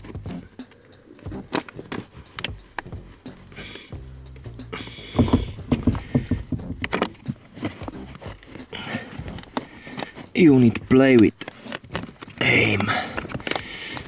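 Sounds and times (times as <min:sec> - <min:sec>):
scraping clatter: 0:05.1 - 0:14.0
plastic and metal clicks: 0:05.2 - 0:14.0.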